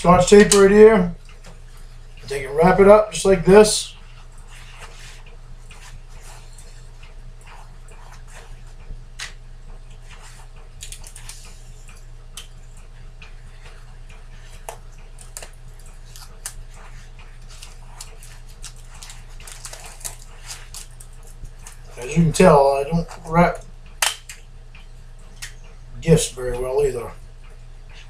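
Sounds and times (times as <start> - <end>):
electric fan hum: 0.0 - 28.0
paper towels crinkling: 13.4 - 23.3.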